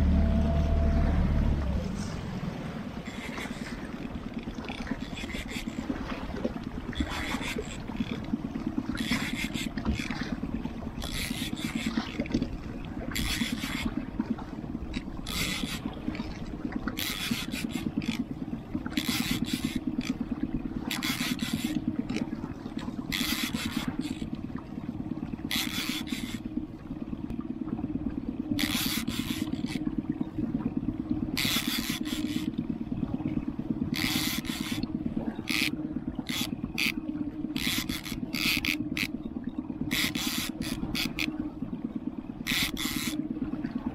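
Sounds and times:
outboard motor running: 0.0 - 43.9.

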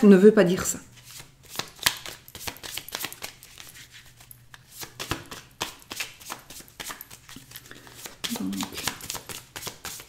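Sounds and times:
cards being shuffled: 1.0 - 10.0.

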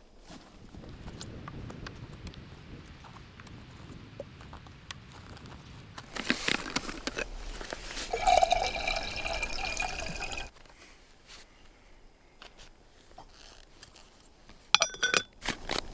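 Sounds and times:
water pouring into metal pot: 8.0 - 10.5.

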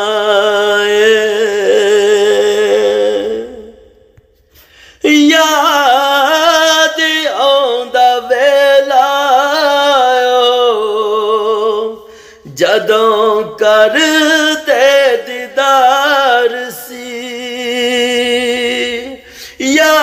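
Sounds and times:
man singing devotional song: 0.0 - 20.0.

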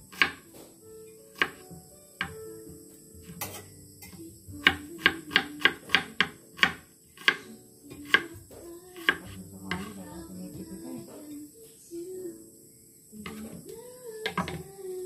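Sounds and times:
knife chopping on wooden board: 1.4 - 2.4, 4.6 - 7.4, 8.0 - 8.4, 9.0 - 10.0.

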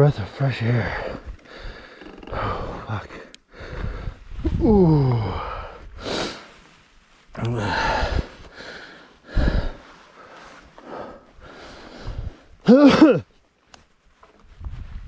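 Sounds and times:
person breathing hard: 1.0 - 2.8, 3.4 - 6.6, 7.5 - 12.6
person groaning: 4.5 - 5.7.

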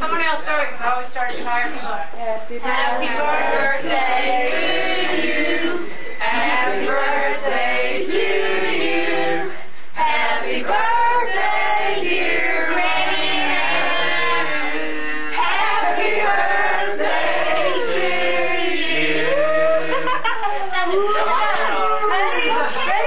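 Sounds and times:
group of people singing: 2.6 - 23.0.

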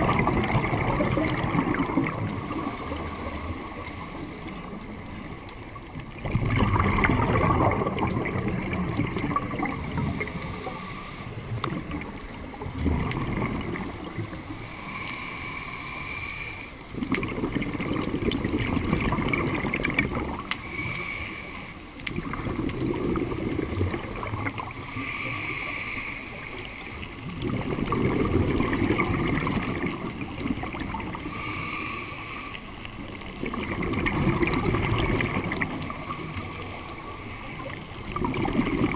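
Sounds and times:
bubbling exhaust underwater: 0.0 - 38.9
regulator hissing inhale: 2.3 - 5.4, 9.9 - 11.7, 14.4 - 16.9, 20.5 - 22.0, 24.7 - 27.4, 31.0 - 33.2, 35.6 - 38.1.

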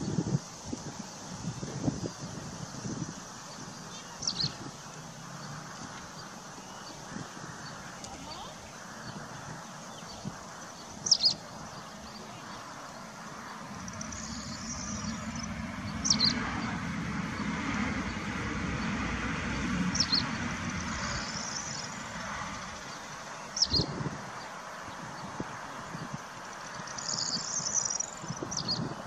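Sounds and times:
rushing background noise: 0.0 - 29.0
bird chirping double note: 13.8 - 16.4.

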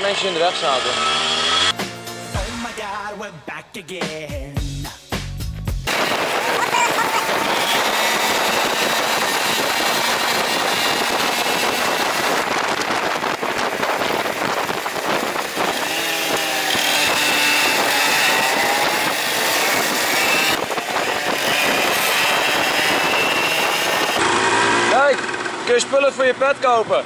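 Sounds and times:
moped engines revving: 0.0 - 1.8, 5.9 - 27.0
wind noise: 5.9 - 24.2.

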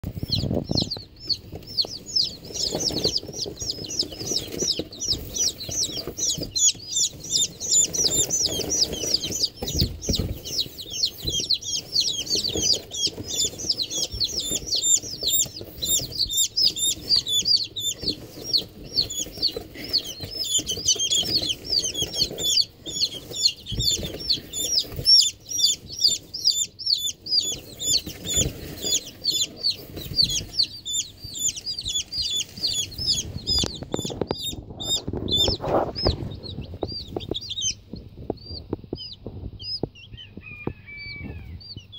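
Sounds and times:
rustling and bumps: 0.0 - 40.0
chicks peeping: 0.0 - 41.9.

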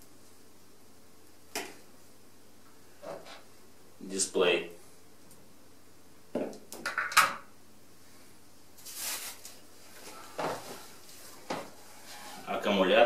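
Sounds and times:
plastic packaging rustling: 8.8 - 12.5.

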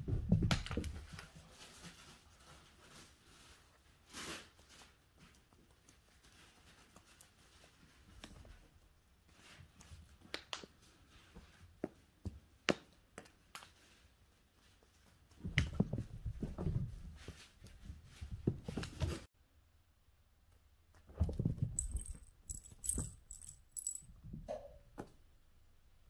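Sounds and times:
cat thumping and scrabbling: 21.1 - 22.2.

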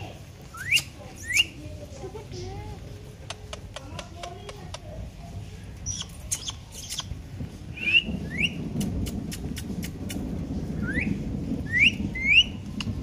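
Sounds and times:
rising bird whistles: 0.5 - 1.6, 7.8 - 8.6, 10.8 - 12.6
sharp bird clicks: 5.9 - 7.2.

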